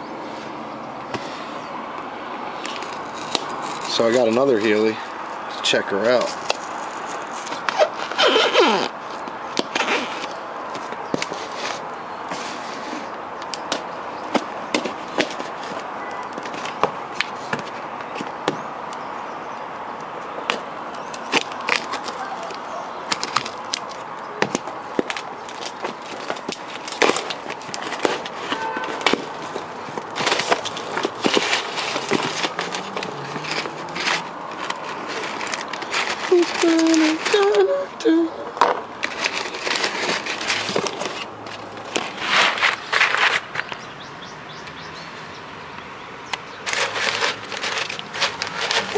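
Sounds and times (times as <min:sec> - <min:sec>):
packing paper rustling: 0:02.5 - 0:18.3, 0:20.5 - 0:38.3, 0:39.0 - 0:43.8, 0:46.6 - 0:48.9
cardboard box being opened: 0:21.2 - 0:37.7, 0:39.0 - 0:43.7, 0:46.7 - 0:48.9.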